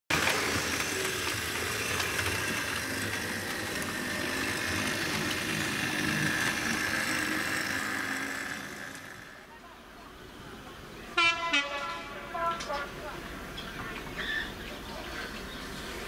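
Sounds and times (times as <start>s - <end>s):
model train wheels rumbling: 0.1s - 9.6s
electric motor whine: 0.2s - 9.4s.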